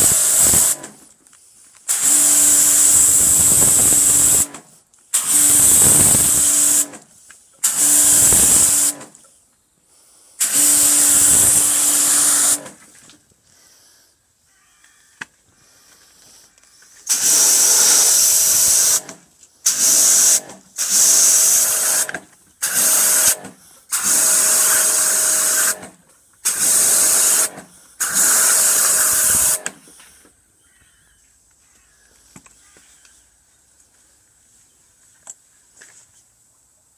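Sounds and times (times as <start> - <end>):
pressure washer motor hum: 0.0 - 1.0, 1.9 - 9.2, 10.4 - 12.8, 17.0 - 29.8
water jet hissing: 0.0 - 1.0, 1.9 - 4.5, 5.1 - 6.9, 7.6 - 9.1, 10.4 - 12.8, 17.0 - 30.2.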